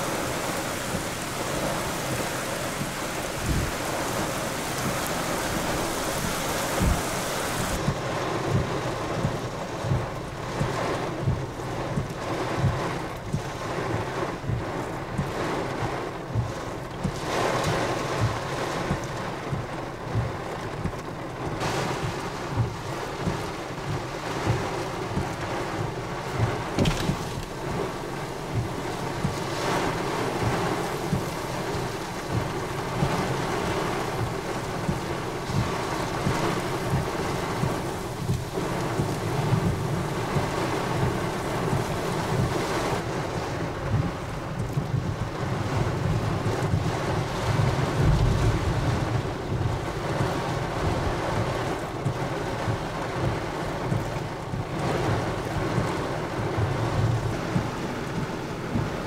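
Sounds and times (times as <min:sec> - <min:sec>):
gusty wind: 0:00.0 - 0:08.0, 0:26.4 - 0:51.5
wind buffeting microphone: 0:00.0 - 0:13.5, 0:21.9 - 0:59.0
rain: 0:00.0 - 0:59.0.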